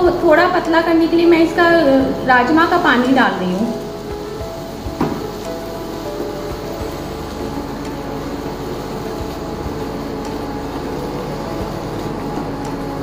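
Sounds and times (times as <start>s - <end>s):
steady hum: 0.0s - 13.0s
beans simmering in a pan: 3.7s - 13.0s.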